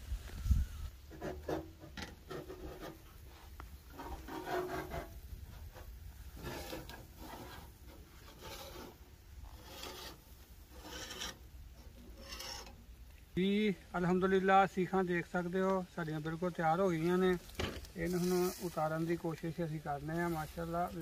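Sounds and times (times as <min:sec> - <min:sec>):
metal skewers scraping and clinking: 0:06.4 - 0:12.8.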